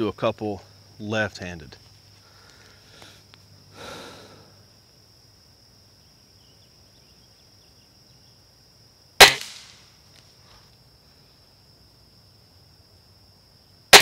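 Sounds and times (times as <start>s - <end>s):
air rifle shot crack: 9.2s - 9.8s.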